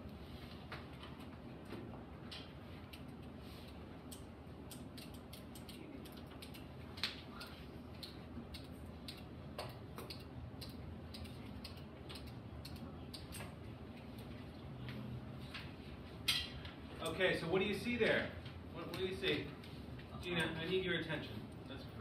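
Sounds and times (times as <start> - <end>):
faint small clicks and ticks: 2.3 - 14.4.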